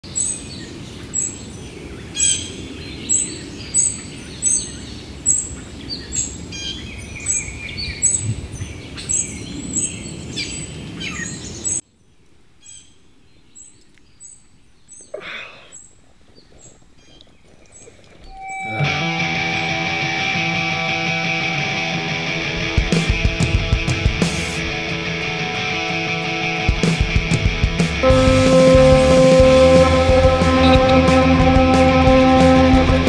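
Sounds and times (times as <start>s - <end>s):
outdoor ambience: 0.0s - 33.0s
birds chirping and singing: 0.2s - 11.8s.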